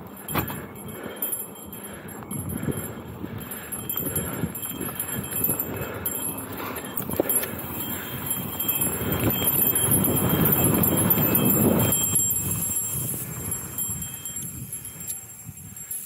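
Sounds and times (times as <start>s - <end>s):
bike rattling: 0.0s - 16.0s
bike tyres on dirt: 0.0s - 16.0s.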